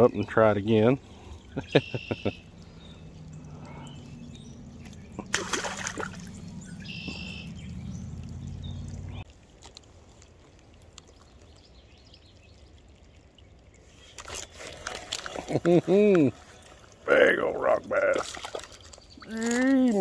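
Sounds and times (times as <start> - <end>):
low steady hum: 1.0 - 9.3
short bird call: 6.7 - 7.6
handling noise rustle and clatter: 14.1 - 15.8.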